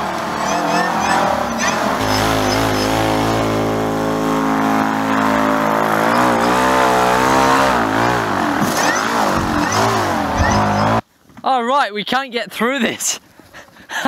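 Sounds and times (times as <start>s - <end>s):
electric motor and propeller running: 0.0s - 11.0s.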